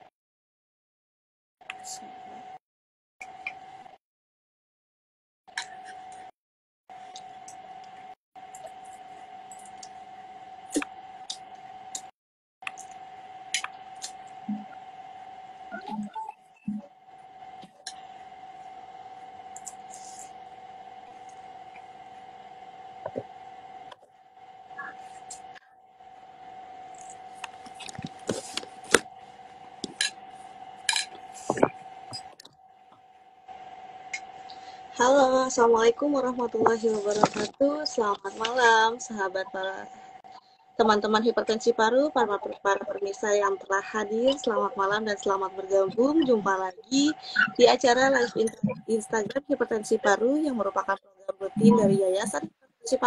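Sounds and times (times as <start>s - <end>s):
faint steady hum: 6.9s - 53.0s
high electronic tone: 51.3s - 52.5s.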